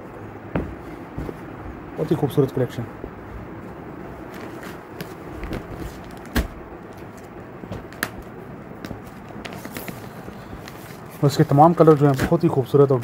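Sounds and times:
low background hiss: 0.0 - 13.0
light rustles of plastic and cloth: 3.0 - 13.0.

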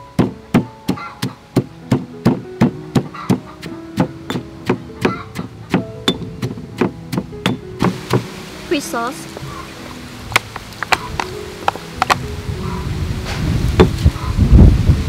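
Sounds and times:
stone pestle pounding in mortar: 0.1 - 8.3.

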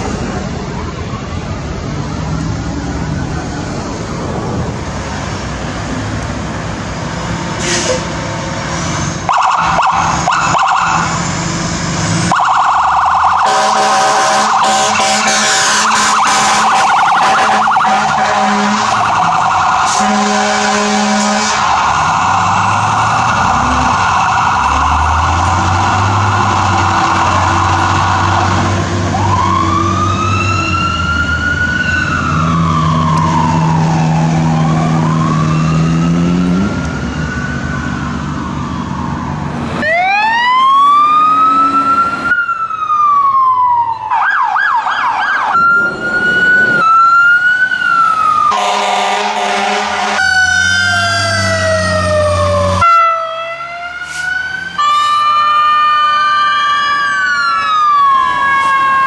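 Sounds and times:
electronic siren yelp: 9.3 - 11.3, 12.3 - 59.0
electronic siren wailing: 9.3 - 11.4, 12.2 - 59.0
low air horn note: 13.4 - 19.0, 19.8 - 21.6, 48.5 - 50.3.

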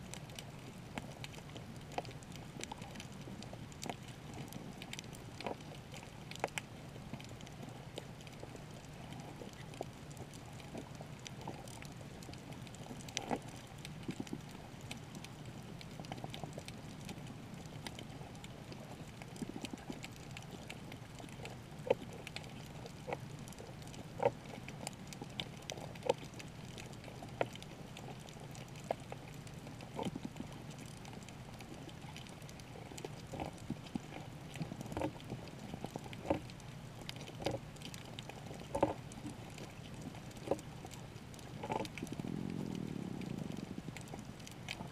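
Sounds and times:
muffled underwater hum: 0.0 - 44.9.

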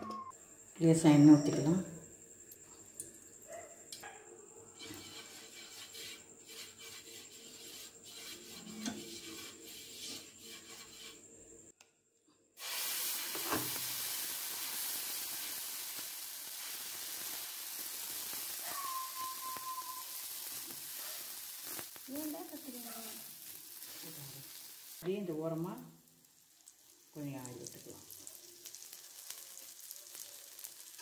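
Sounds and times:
batter sizzling on hot pan: 4.7 - 11.3, 12.6 - 31.0
oil crackling in a pan: 12.6 - 31.0.

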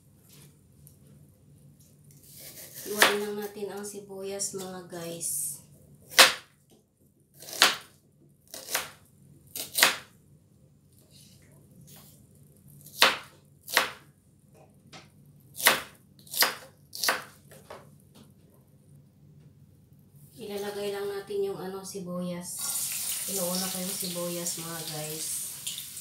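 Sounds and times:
knife chopping onion on board: 2.3 - 3.3, 6.1 - 6.5, 7.4 - 7.9, 8.5 - 10.1, 12.8 - 14.0, 15.6 - 17.8.

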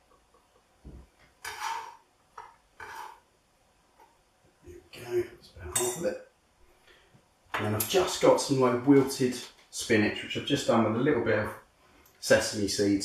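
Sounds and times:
knife scraping chopping board: 1.4 - 2.0, 2.8 - 3.2.

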